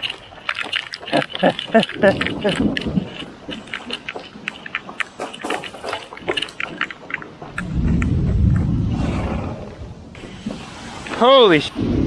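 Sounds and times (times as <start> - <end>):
thunder rumbling: 7.4 - 12.0.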